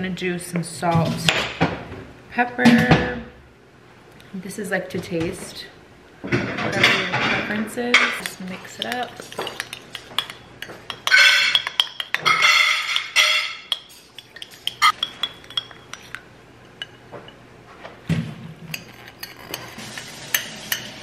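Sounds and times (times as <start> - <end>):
metal spoon clinking in ceramic bowl: 8.0 - 17.0.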